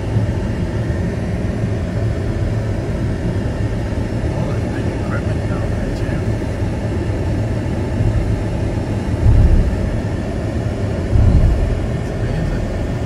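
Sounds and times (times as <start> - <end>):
car road rumble from inside: 9.2 - 13.0.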